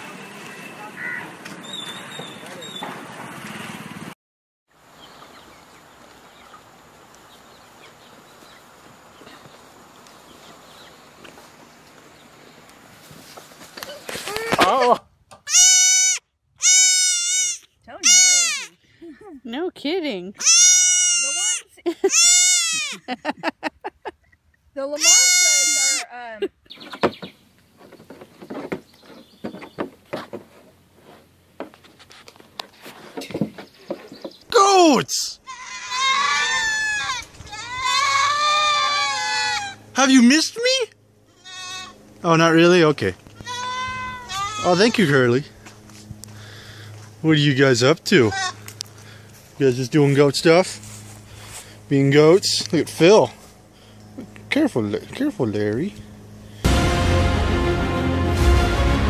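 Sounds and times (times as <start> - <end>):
loud rushing noise: 56.6 - 59.0.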